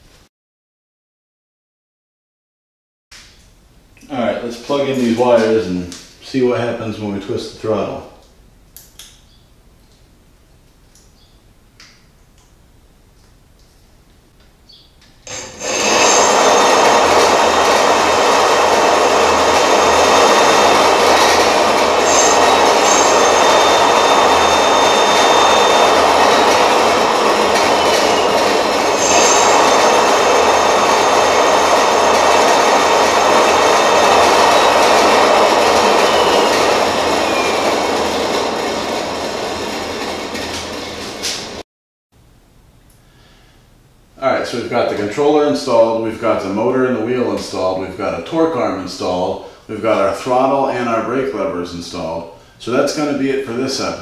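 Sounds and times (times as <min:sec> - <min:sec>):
electric hub motor whirring: 0:15.2 - 0:41.6.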